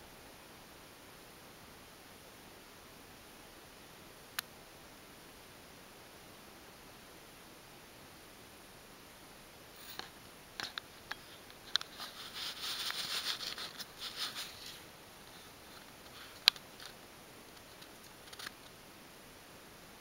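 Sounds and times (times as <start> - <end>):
fur rustling against fabric: 11.3 - 16.4.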